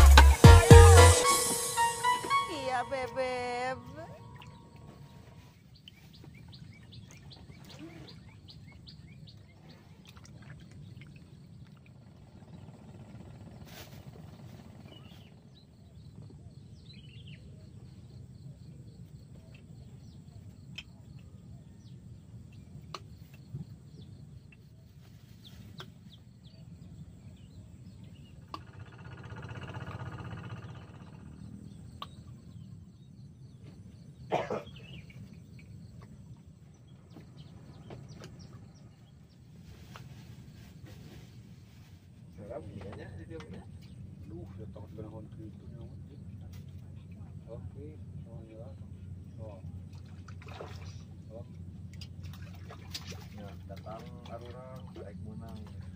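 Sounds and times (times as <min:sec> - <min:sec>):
distant bird calls: 0:27.3 - 0:39.4.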